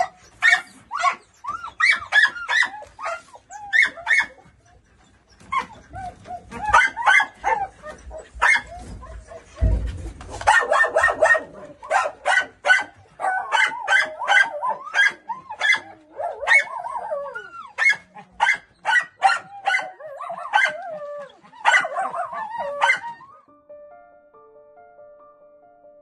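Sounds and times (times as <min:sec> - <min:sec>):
dogs barking: 0:00.0 - 0:04.6, 0:05.4 - 0:23.3
dogs whining: 0:00.0 - 0:12.2, 0:12.9 - 0:23.5.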